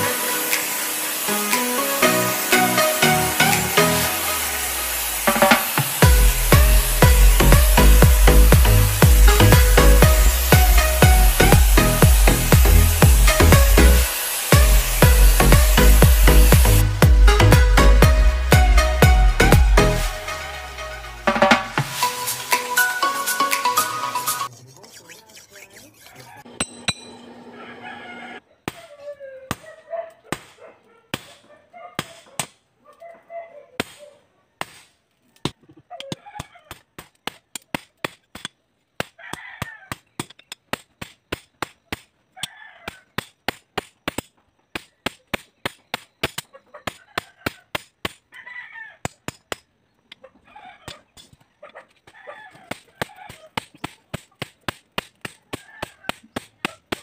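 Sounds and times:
hammer striking metal on anvil: 26.5 - 27.4
rooster crowing: 27.4 - 28.4, 39.2 - 40.1, 42.4 - 43.1, 48.3 - 49.2, 50.4 - 51.1, 52.0 - 53.5, 55.5 - 56.2
chickens clucking: 50.0 - 54.4.

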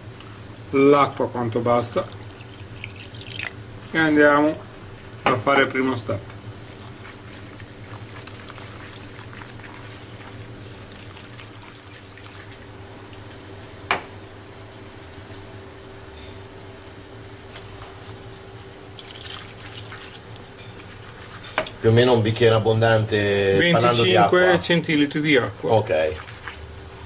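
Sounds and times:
water sloshing in flour: 5.5 - 13.3, 18.9 - 22.4, 24.4 - 27.0.

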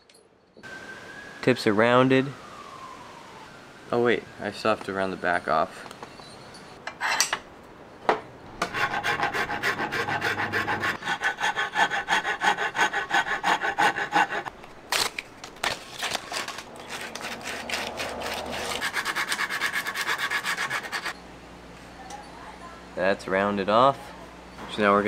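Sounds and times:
wood rasp scraping wood: 8.6 - 14.5, 16.1 - 21.2.

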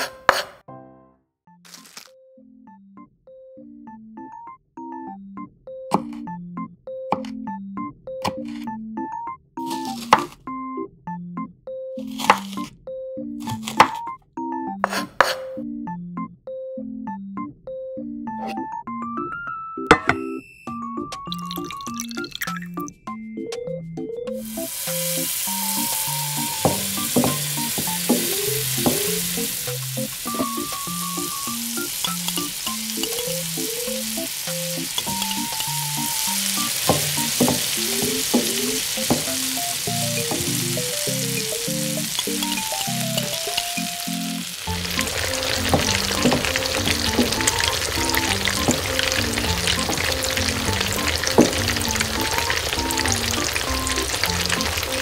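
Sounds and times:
oil sizzling in a wok: 24.4 - 55.0
small pops in sizzle: 24.6 - 55.0.

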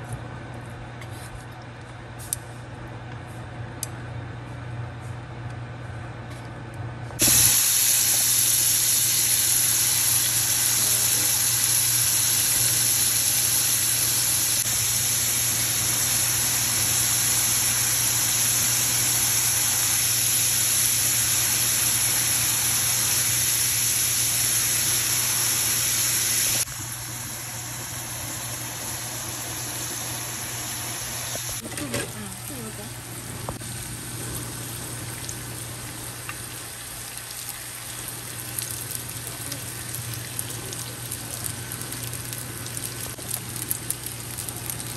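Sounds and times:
shrimp sizzling in frying pan: 7.2 - 31.6.

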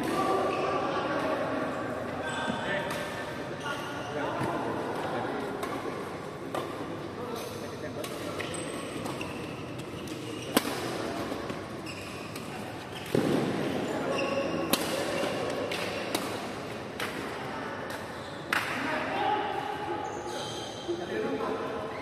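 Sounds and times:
shoes squeaking on court: 8.4 - 15.7.

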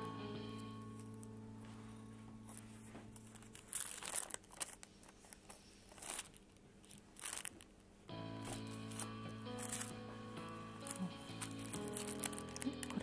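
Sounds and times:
background music: 0.0 - 3.2, 8.1 - 13.0
paper crinkling: 2.4 - 7.7, 8.4 - 13.0.

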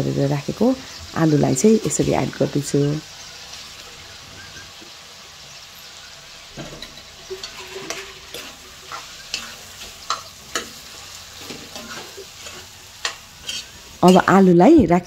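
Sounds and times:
food sizzling in a wok: 0.0 - 15.0
spatula scraping a wok: 5.8 - 14.4.

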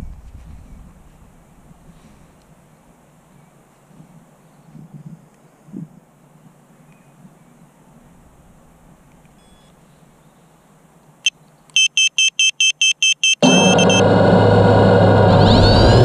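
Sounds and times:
faint background hiss: 0.0 - 12.8
short high electronic beeps: 11.8 - 14.1
loud multi-pitched hum: 13.4 - 16.0.

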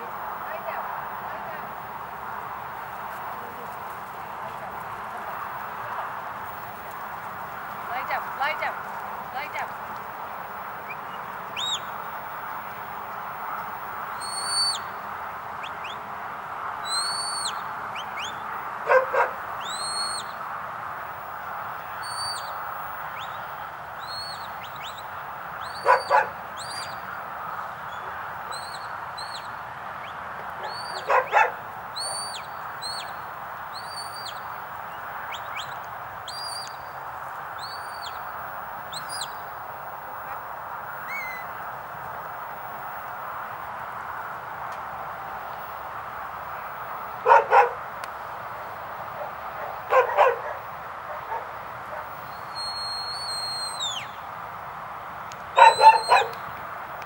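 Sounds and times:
high whistled calls: 10.9 - 11.9, 14.2 - 14.9, 16.9 - 18.4, 19.6 - 20.4, 22.0 - 22.6, 24.0 - 25.0, 27.9 - 31.1, 33.8 - 34.5, 35.3 - 36.8, 52.2 - 54.2, 55.6 - 56.4
dog barking: 18.9 - 19.4, 25.8 - 26.4, 30.6 - 31.6, 47.2 - 47.8, 49.2 - 52.1, 55.6 - 56.4.

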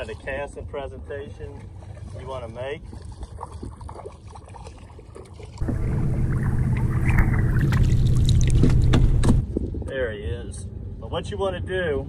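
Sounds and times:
water washing against boat hull: 1.4 - 9.4
fish thrashing and splashing: 1.6 - 9.4.

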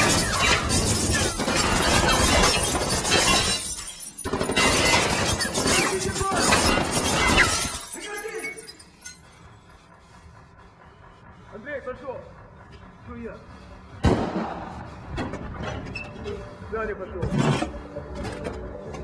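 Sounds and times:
loud crashing and shattering: 0.0 - 8.8.

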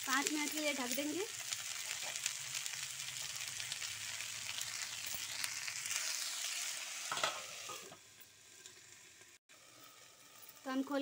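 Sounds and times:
vegetables sizzling in hot oil: 0.0 - 11.0
metal plate clanking on pan: 7.1 - 7.9.

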